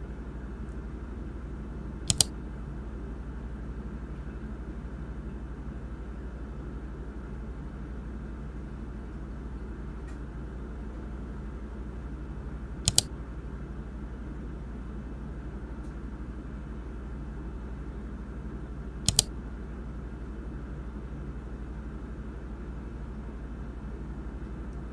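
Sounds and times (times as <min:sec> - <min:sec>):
steady low hum: 0:00.0 - 0:24.9
computer mouse double-clicking: 0:02.1 - 0:02.3, 0:12.9 - 0:13.1, 0:19.1 - 0:19.3.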